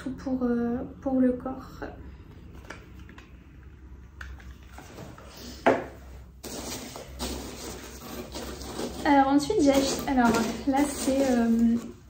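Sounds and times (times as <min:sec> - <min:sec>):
rustling of handled objects: 0:04.4 - 0:12.0.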